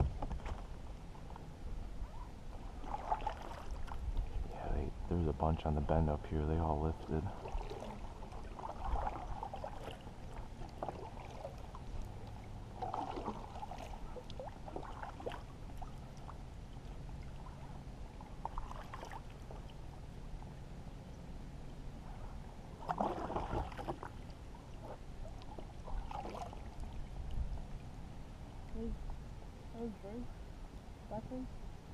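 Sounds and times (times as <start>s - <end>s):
paddle swishing through water: 0.0s - 4.5s, 7.2s - 19.9s, 22.1s - 27.9s
water gurgling and dripping: 7.0s - 19.8s.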